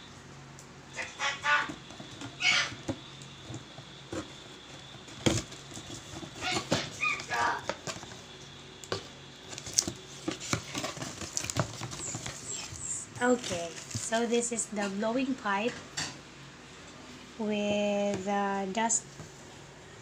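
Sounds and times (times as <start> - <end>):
cardboard knocks and scrapes: 1.7 - 7.0, 8.9 - 14.2.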